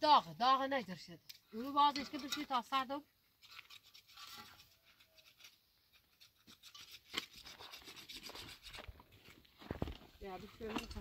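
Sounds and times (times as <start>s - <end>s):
rapid scraping strokes: 3.4s - 8.9s.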